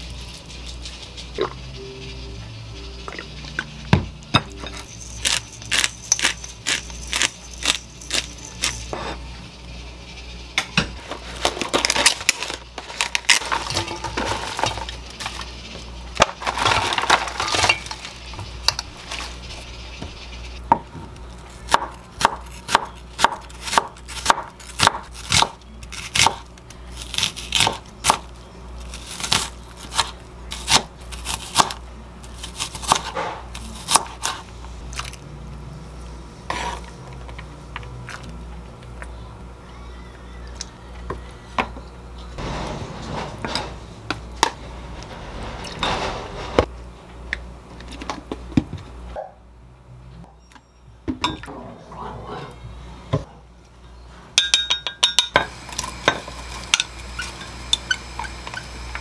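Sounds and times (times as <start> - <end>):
knife chopping on wooden board: 21.7 - 26.4
kitchen clinks and handling: 54.4 - 55.4.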